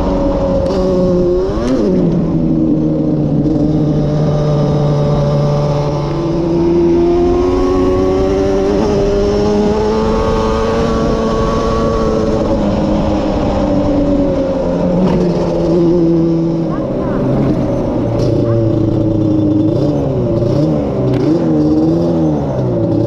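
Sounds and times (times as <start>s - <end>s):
two-stroke engine revving: 3.3s - 23.0s.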